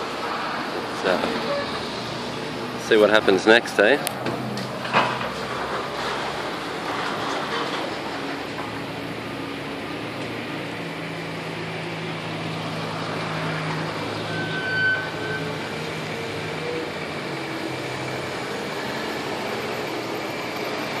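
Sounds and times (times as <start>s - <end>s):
excavator diesel engine running: 0.0s - 21.0s
high squeal: 1.4s - 2.0s, 13.9s - 16.9s.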